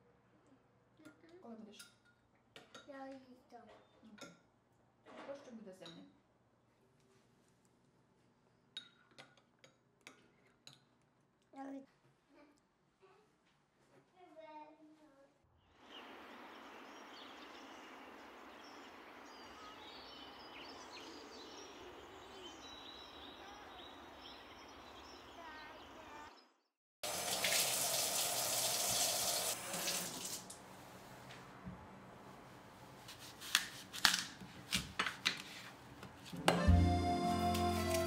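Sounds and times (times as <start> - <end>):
knocks and clicks of kitchen work: 1.0 - 6.2, 8.7 - 11.1
faint high chirps: 15.7 - 26.6
kitchen tap running: 27.0 - 30.6.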